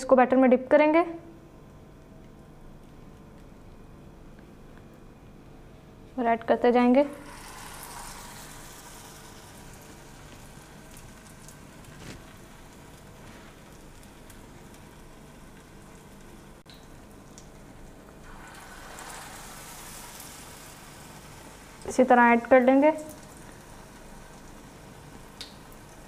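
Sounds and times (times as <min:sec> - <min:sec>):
hot oil sizzling: 0:07.1 - 0:26.0.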